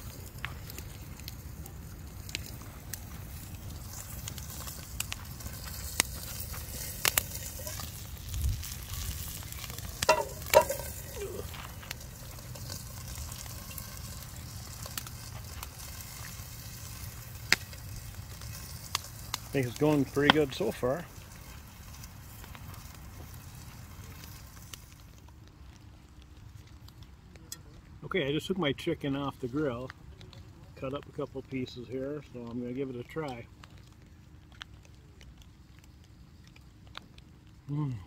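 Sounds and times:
chicken sizzling in a pan: 0.0 - 25.2.

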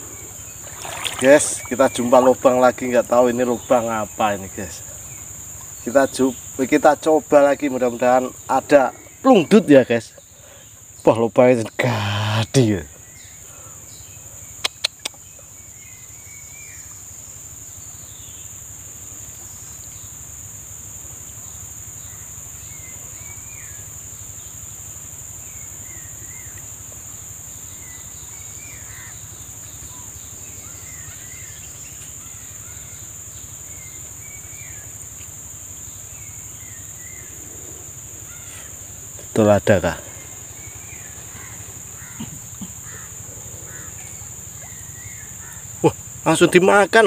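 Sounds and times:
insects droning: 0.0 - 47.0
sharp clicks: 14.6 - 15.2.

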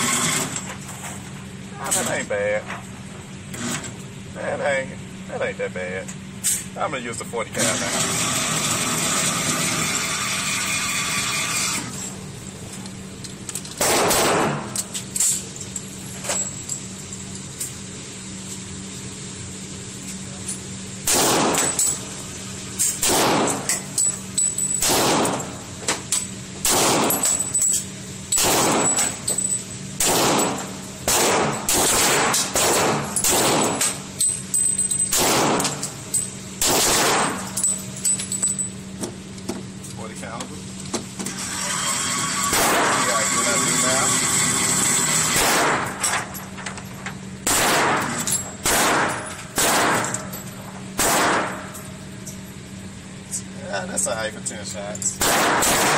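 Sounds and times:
pistol shots echoing indoors: 13.8 - 14.8, 21.0 - 21.8, 23.0 - 23.7, 24.8 - 25.5, 26.6 - 27.4, 28.4 - 29.1, 30.0 - 33.9, 35.1 - 35.8, 36.6 - 37.5, 42.5 - 43.0, 45.3 - 45.9, 47.4 - 50.2, 51.0 - 51.7, 55.2 - 55.9.

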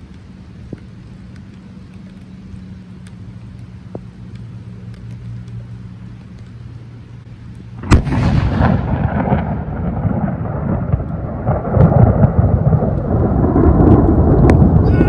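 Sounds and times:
faint rain ticks: 0.0 - 15.0
low hum: 0.0 - 15.0
thunder crack and rumble: 7.8 - 15.0.

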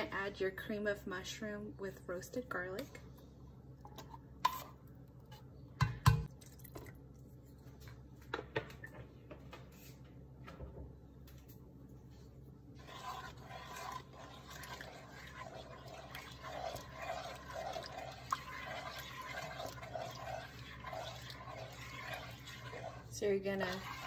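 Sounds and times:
spoon stirring soup in pot: 12.7 - 24.0.

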